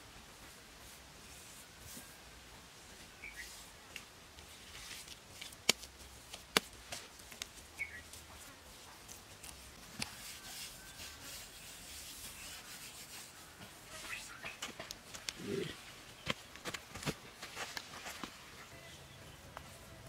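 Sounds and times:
dry grass rustling and scraping: 4.4 - 18.7.

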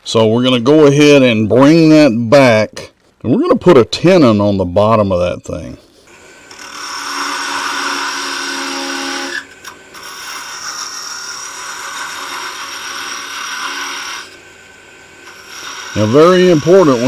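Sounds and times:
lathe tool scraping wood: 5.9 - 17.0.

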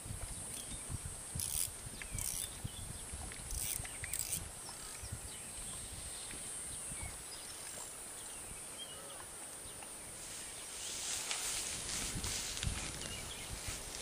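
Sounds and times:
wind buffeting the microphone: 0.0 - 7.6, 11.0 - 14.0
steady high hiss: 3.7 - 14.0.

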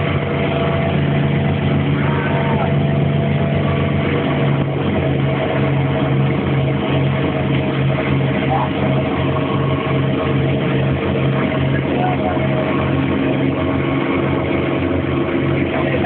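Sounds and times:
boat engine droning: 0.0 - 16.0
churning wake rushing: 0.0 - 16.0.

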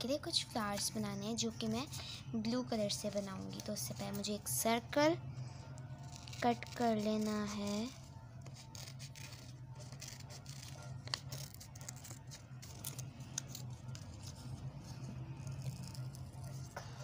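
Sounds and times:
scissors snipping paper: 6.0 - 16.7.

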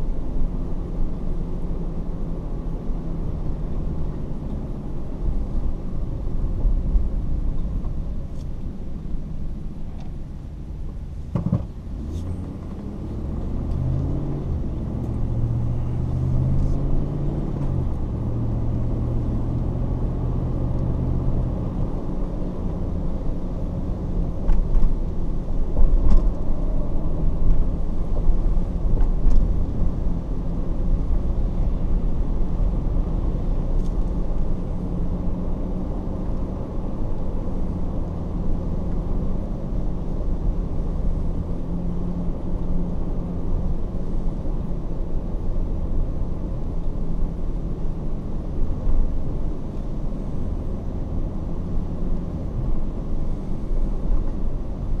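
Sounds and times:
car engine and road noise: 0.0 - 55.0
car bumps: 11.3 - 11.8.

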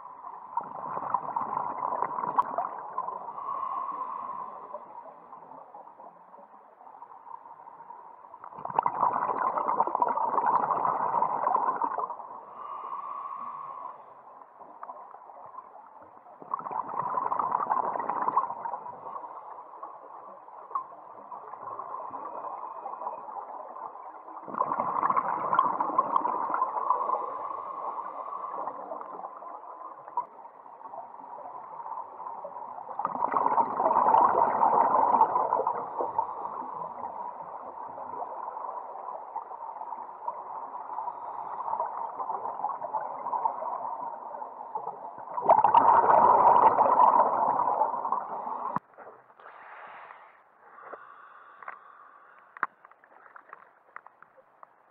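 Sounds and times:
exhaled bubbles rushing: 0.4 - 3.2, 8.4 - 12.2, 16.4 - 19.2, 21.4 - 27.4, 32.8 - 40.8, 41.7 - 48.8.

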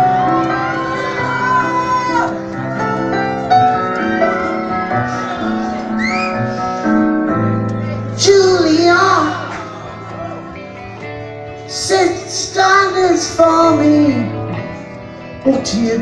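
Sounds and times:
rock band playing live: 0.0 - 16.0.

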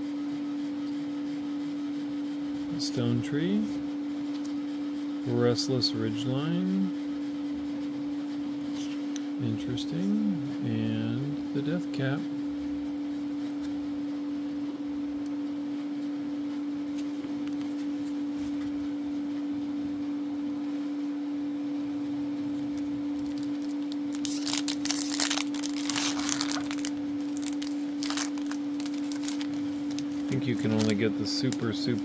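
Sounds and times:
steady low hum: 0.0 - 32.0
foil wrapper crinkling and tearing: 23.1 - 32.0.

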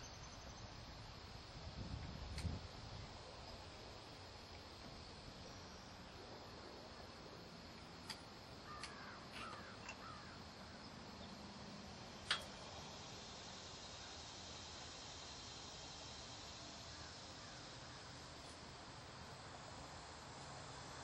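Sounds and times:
bird calling: 8.6 - 10.8
sharp clicks and knocks: 12.2 - 12.6.

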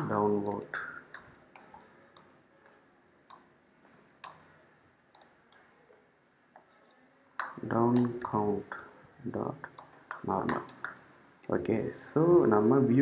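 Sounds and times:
computer keyboard typing: 0.0 - 6.0, 9.8 - 11.0.

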